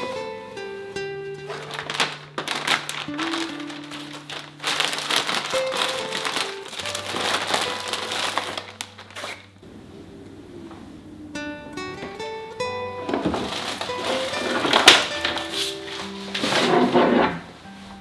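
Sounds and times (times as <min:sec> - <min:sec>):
plucked guitar background music: 0:00.0 - 0:18.0
flour bags crinkling: 0:01.4 - 0:09.6, 0:13.2 - 0:16.7.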